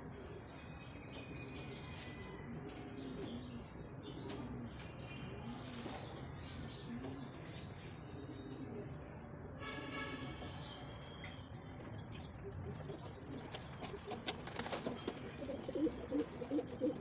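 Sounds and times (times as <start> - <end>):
pigeons cooing: 12.1 - 17.0.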